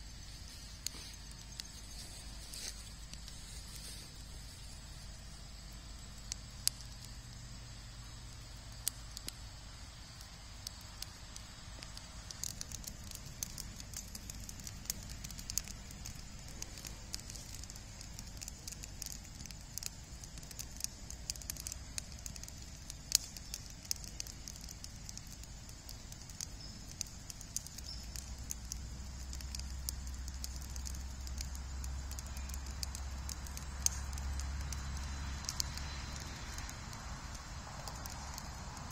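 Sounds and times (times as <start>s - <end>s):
wood fire crackling and popping: 0.0s - 38.9s.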